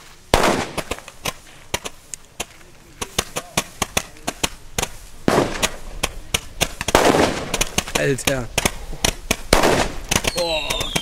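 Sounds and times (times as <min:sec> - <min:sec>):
firework bangs and cracks: 0:00.0 - 0:11.0.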